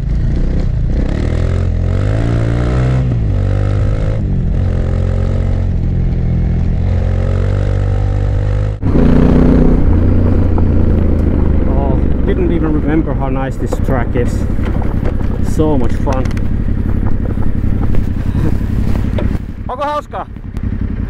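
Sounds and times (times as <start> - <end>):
on-board motorcycle engine: 0.0 - 21.0
motorcycles riding on gravel: 8.7 - 21.0.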